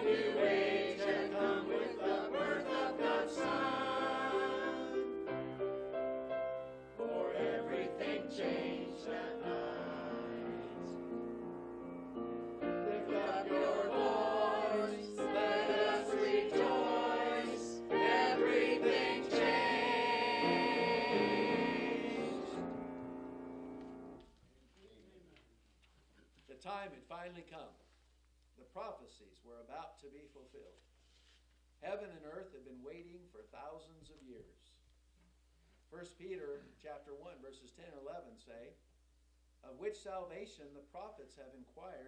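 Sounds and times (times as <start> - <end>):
mixed choir singing: 0.0 - 11.3, 12.6 - 23.8.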